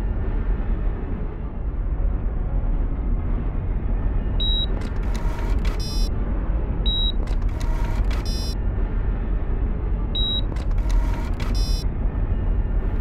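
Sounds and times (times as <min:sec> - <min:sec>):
short high beep: 0:10.2 - 0:10.5.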